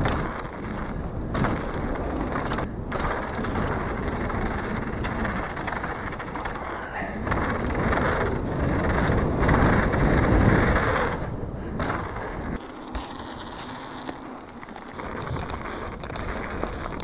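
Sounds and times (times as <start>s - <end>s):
wind rushing over microphone: 0.0s - 12.6s
bike tyres rolling on dirt trail: 0.0s - 17.0s.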